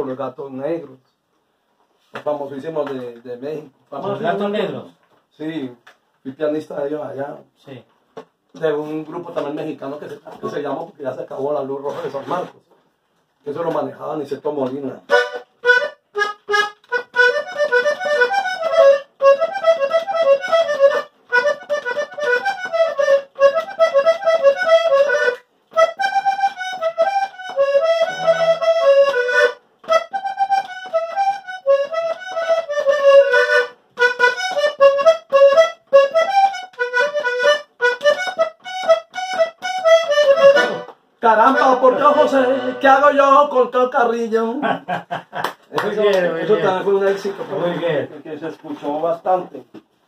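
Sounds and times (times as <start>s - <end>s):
button accordion melody: 15.1s - 43.6s.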